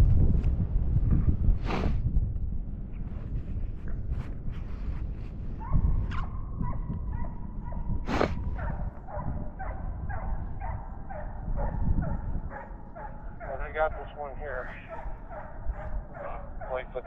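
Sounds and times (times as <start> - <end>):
hound baying: 5.6 - 17.0.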